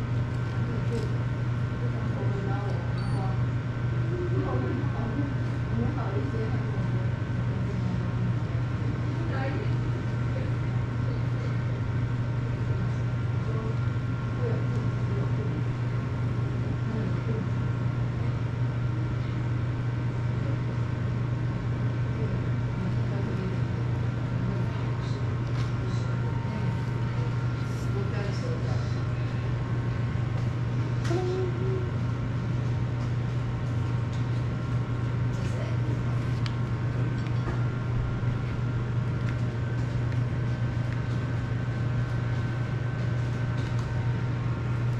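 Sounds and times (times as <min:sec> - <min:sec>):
steady low hum: 0:00.0 - 0:44.9.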